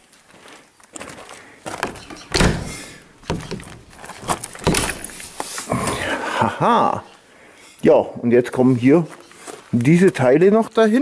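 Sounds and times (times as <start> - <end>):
wooden door knocks and clunks: 1.8 - 5.2.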